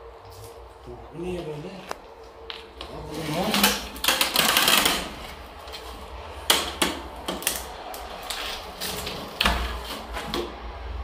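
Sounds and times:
objects knocking and clicking: 3.5 - 7.7
loud rustling scrape: 8.0 - 10.3.

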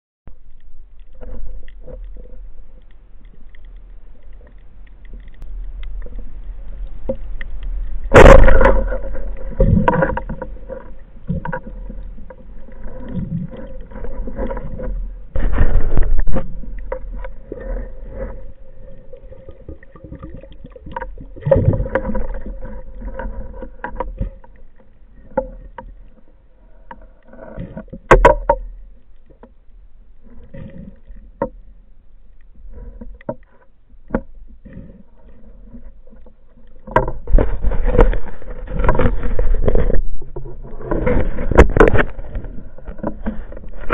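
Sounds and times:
faint steady hum: 0.3 - 43.9
muffled underwater movement: 0.3 - 43.9
underwater knocking: 6.8 - 26.2.

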